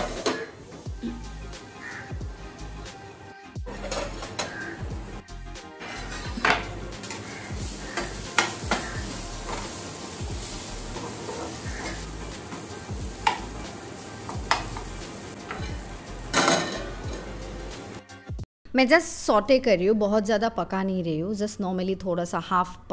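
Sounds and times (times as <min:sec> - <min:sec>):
food sizzling in a pan: 0:00.0 - 0:02.0, 0:05.8 - 0:18.0
spatula scraping a pan: 0:05.8 - 0:13.4.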